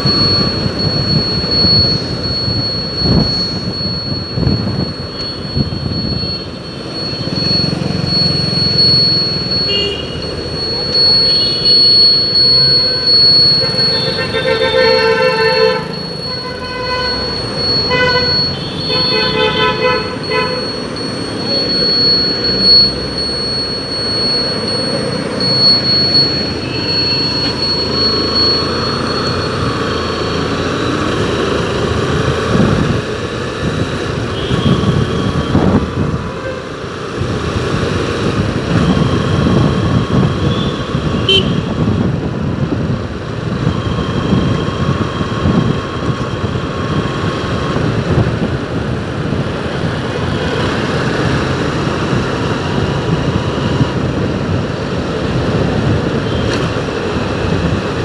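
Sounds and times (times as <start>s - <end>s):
road traffic noise: 0.0s - 58.0s
vehicle horn tooting: 9.7s - 10.2s, 13.6s - 20.6s, 36.2s - 36.8s, 40.4s - 41.8s.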